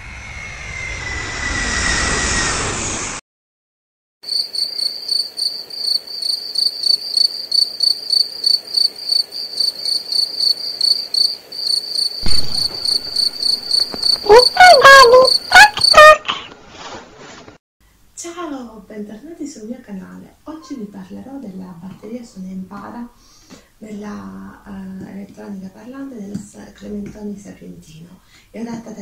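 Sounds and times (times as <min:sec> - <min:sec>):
cricket chirping: 0:04.3 - 0:16.2.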